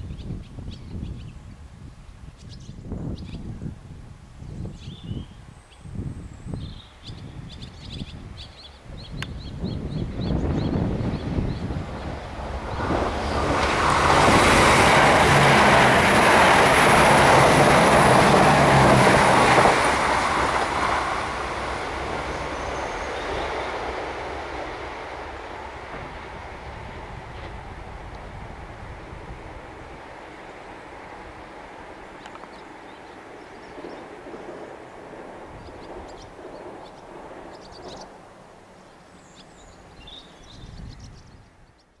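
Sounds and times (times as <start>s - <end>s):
train wheels rumbling on rails: 9.3s - 38.6s
diesel train engine drone: 10.1s - 38.8s
birds chirping: 20.2s - 25.9s.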